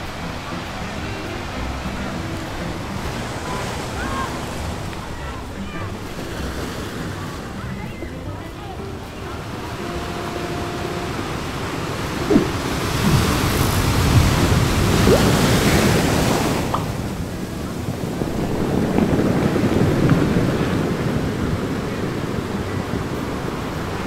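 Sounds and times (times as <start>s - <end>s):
ocean surf breaking on beach: 0.0s - 24.0s
wind on microphone: 9.4s - 24.0s.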